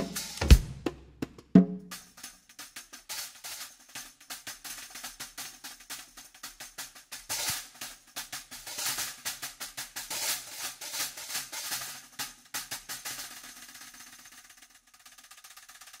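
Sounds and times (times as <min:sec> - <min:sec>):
hi-hat tapped with fingers: 0:00.0 - 0:14.4.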